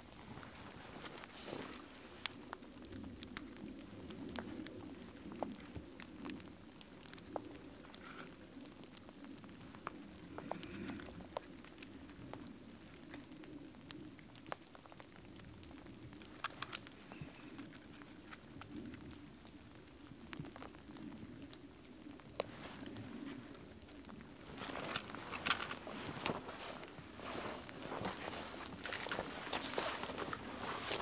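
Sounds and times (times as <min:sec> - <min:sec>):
fire crackling: 0:00.0 - 0:31.0
sticks laid on fire: 0:24.4 - 0:31.0.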